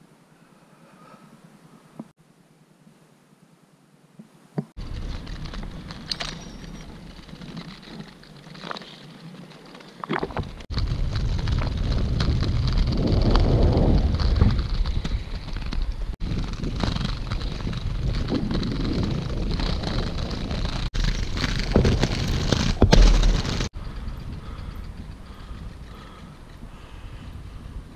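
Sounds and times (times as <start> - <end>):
skate wheels rolling over paving: 4.8 - 26.3
wind buffeting microphone: 10.2 - 27.9.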